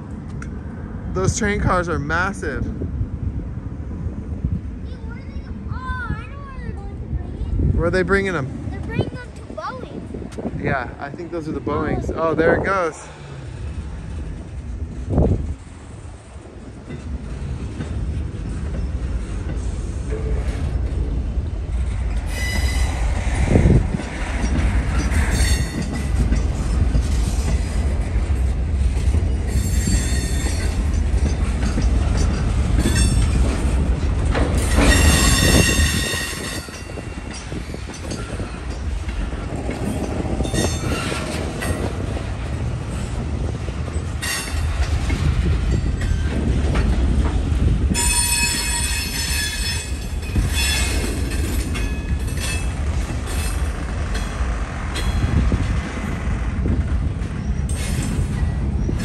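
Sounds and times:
train wheels rumbling on rails: 0.0 - 59.0
high-pitched wheel squeal: 22.3 - 23.0, 34.6 - 36.8, 48.0 - 51.1.

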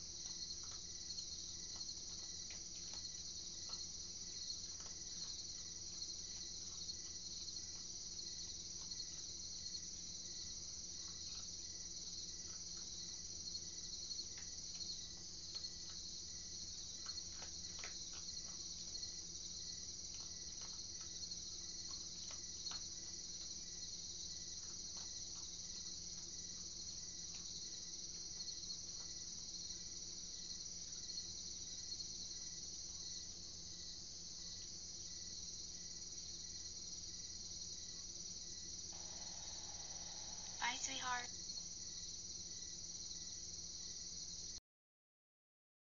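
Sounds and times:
animal eating dry kibble: 0.0 - 29.5
night insects trilling: 0.0 - 44.6.

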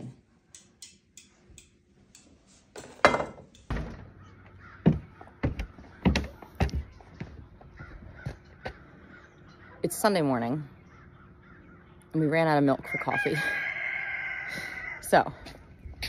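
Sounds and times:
crows cawing: 4.0 - 9.9, 10.7 - 12.1, 12.9 - 15.1.

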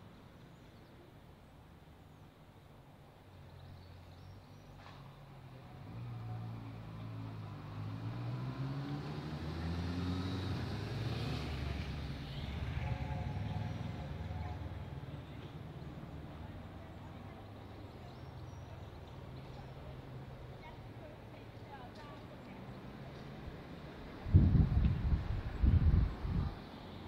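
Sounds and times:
engine accelerating: 5.8 - 14.9.

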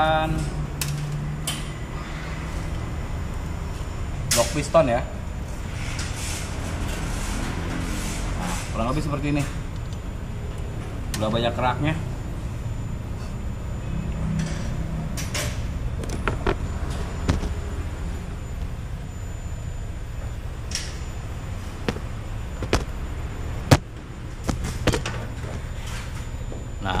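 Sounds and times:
steady low hum: 0.0 - 27.0
sharp clicks and knocks: 21.8 - 22.9, 23.7 - 25.6.

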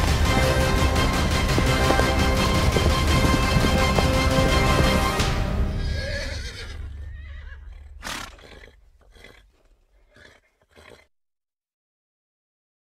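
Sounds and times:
music: 0.0 - 6.5
horse snorting: 1.2 - 11.1.

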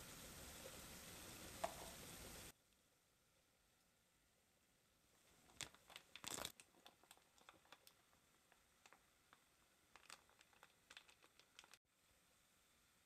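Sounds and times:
plastic bag crinkling: 5.4 - 9.0, 9.9 - 11.8
beans ticking into metal pot: 5.5 - 11.8.

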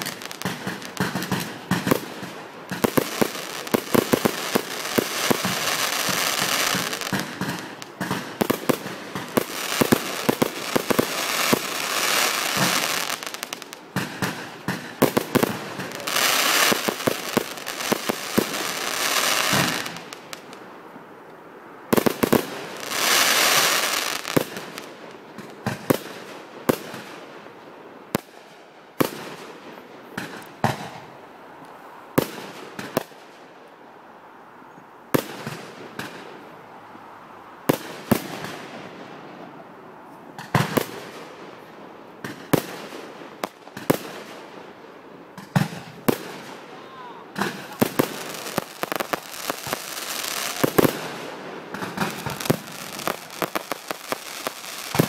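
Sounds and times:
fireworks bangs: 0.0 - 20.6, 21.9 - 27.2, 45.3 - 55.0
fireworks crackling and hissing: 0.0 - 33.7, 35.1 - 36.7, 37.6 - 55.0.

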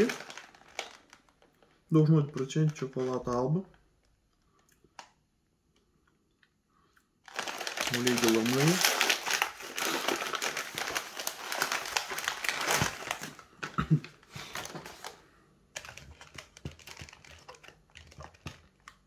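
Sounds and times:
plastic food packaging crinkling: 0.0 - 5.1, 7.2 - 19.0.

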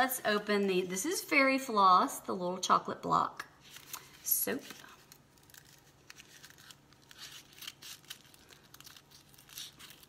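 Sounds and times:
paper wrapper crinkling: 3.6 - 10.0
scissors snipping paper: 5.1 - 10.0.

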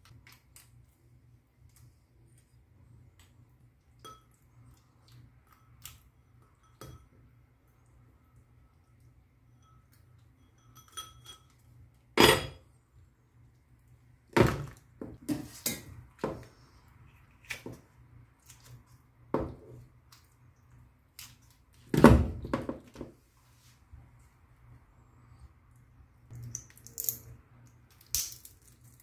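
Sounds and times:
lobster shell cracking: 27.9 - 29.0.

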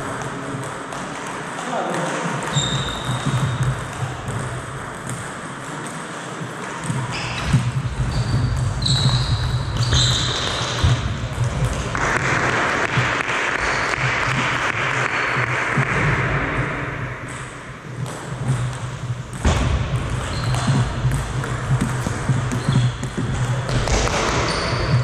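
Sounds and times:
shoes squeaking on floor: 2.4 - 4.1, 6.8 - 11.6, 20.1 - 25.0.

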